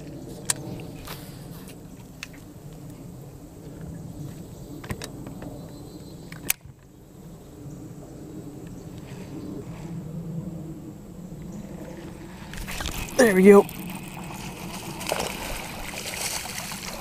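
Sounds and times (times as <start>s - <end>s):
trolling motor electric hum: 10.0s - 17.0s.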